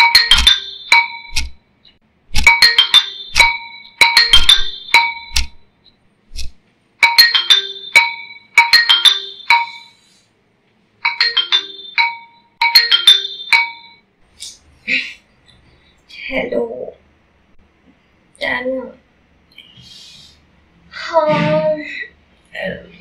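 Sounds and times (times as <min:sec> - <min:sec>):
marimba phone ringtone: 0:00.0 - 0:01.4, 0:02.5 - 0:05.6, 0:07.0 - 0:10.1, 0:11.0 - 0:14.1.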